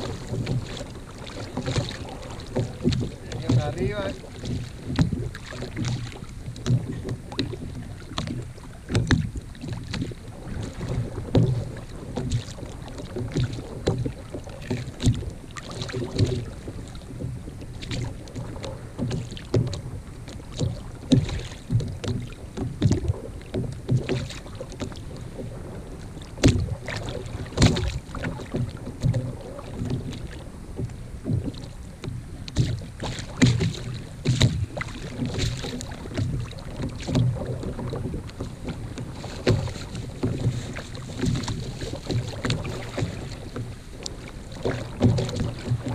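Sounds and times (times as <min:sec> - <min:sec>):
sharp knocks on hull: 0:00.0 - 0:10.1, 0:20.5 - 0:25.0, 0:26.4 - 0:43.7, 0:44.6 - 0:45.9
waves slapping against kayak hull: 0:00.0 - 0:45.9
wind on microphone: 0:00.0 - 0:45.9.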